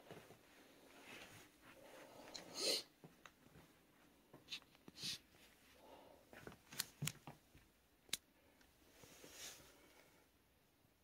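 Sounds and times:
soft rustles: 0.0 - 2.4, 8.8 - 10.2.

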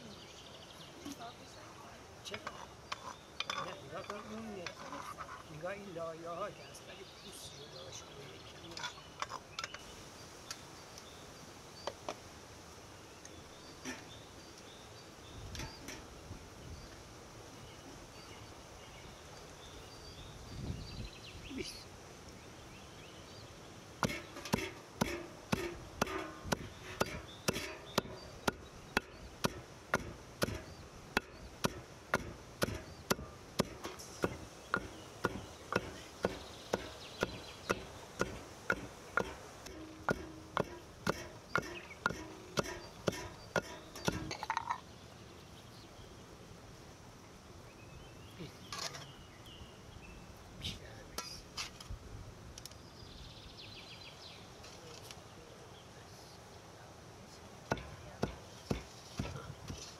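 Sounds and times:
wooden pestle pounding in stone mortar: 24.0 - 44.6, 57.7 - 59.8.

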